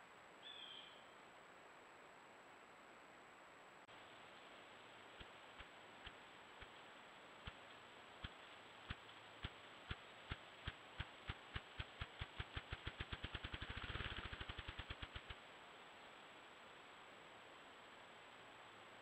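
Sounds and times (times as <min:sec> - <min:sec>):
grouse wing-beat drumming: 0:05.1 - 0:15.4.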